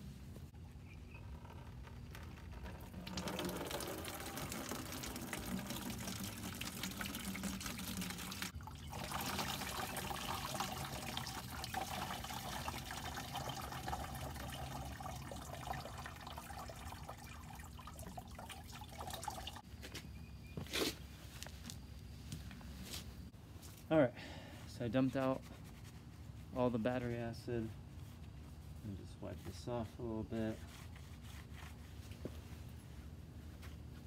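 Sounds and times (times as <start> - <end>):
liquid pouring into plastic bucket: 1.8 - 19.6.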